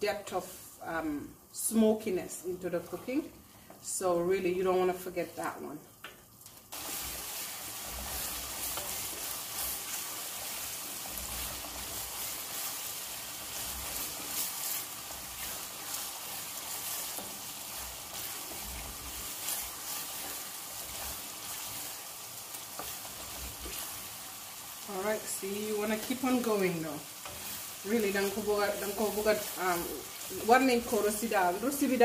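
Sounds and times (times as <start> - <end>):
paste sizzling in oil: 6.7 - 32.0.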